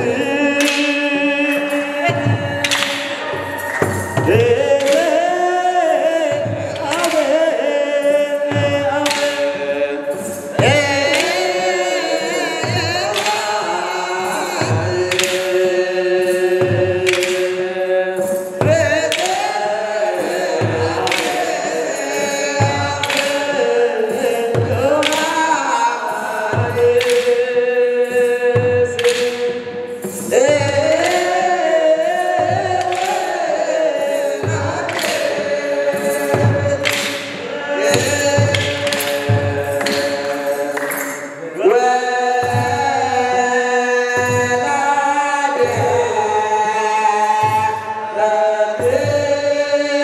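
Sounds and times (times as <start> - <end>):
hand clapping: 0.0 - 50.0
steady beat: 0.0 - 50.0
group chanting in held notes: 9.0 - 28.1, 29.0 - 50.0.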